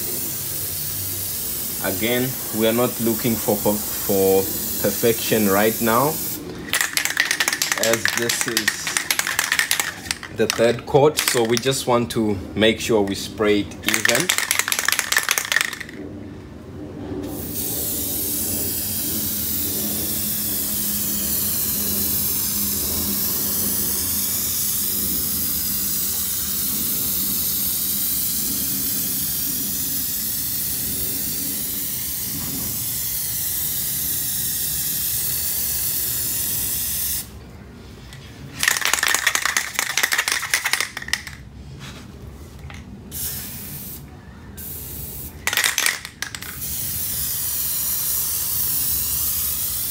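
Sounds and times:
aerosol can spraying hiss: 0.0s - 10.2s, 17.4s - 37.3s, 43.1s - 44.0s, 44.6s - 49.9s
spray can ball rattling: 0.4s - 11.8s, 13.0s - 16.0s, 17.4s - 37.3s, 38.1s - 41.5s, 42.6s - 44.0s, 44.6s - 49.9s.

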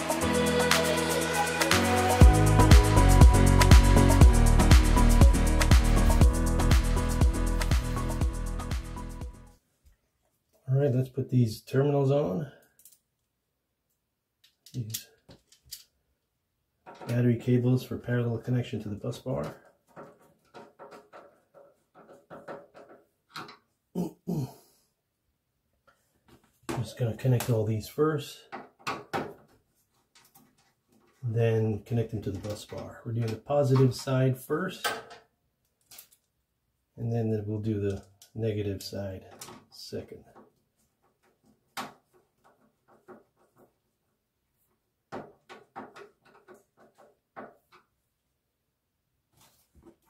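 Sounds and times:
man mumbling: 24.0s - 24.7s
man's falling vocal sounds: 24.0s - 24.7s.

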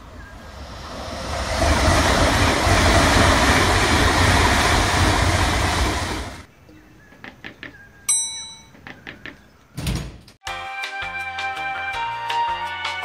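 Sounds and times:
train passing rumble: 0.0s - 6.5s.

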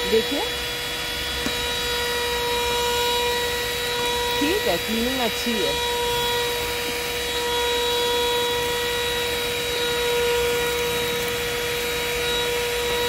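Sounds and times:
handheld vacuum cleaner running: 0.0s - 13.0s.

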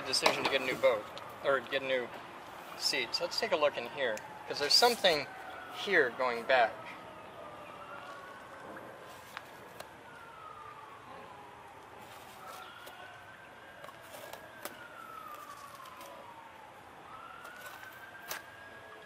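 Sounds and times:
siren wailing: 0.0s - 19.0s.

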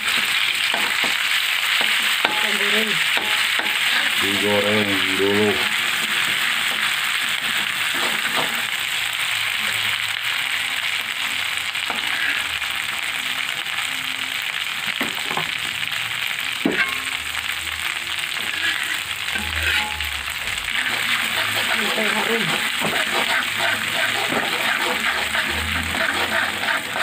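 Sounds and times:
food sizzling in hot oil: 0.0s - 27.0s
metal spatula scraping a pan: 11.9s - 12.7s, 16.7s - 17.5s, 18.2s - 27.0s.

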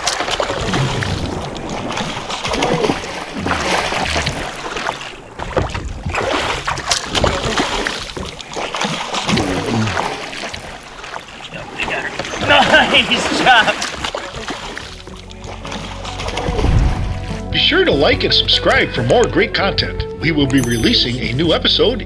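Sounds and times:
fish thrashing and splashing: 0.0s - 17.4s
water wash: 0.0s - 18.2s.

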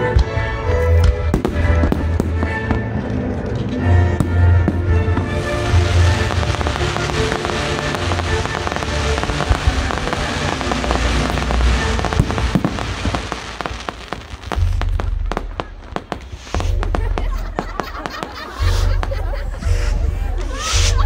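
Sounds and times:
fireworks crackling and popping: 0.0s - 19.5s
music with deep bass: 0.0s - 21.0s.

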